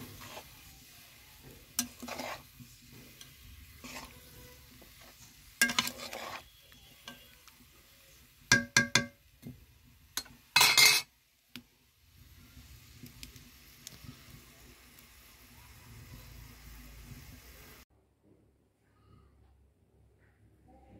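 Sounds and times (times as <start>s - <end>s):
metal ladle scraping pot: 0.0s - 0.6s, 1.7s - 7.4s, 10.2s - 11.1s
curry simmering in pot: 0.0s - 17.8s
metal clinking on metal: 10.2s - 11.1s.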